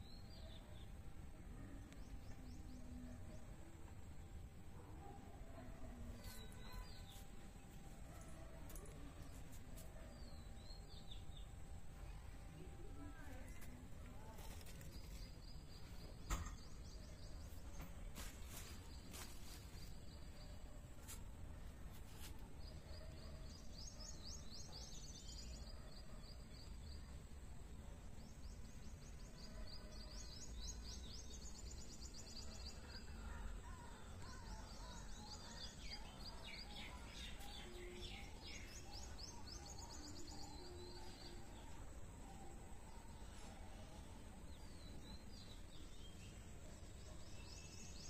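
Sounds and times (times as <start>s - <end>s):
small birds chirping: 0.0s - 48.0s.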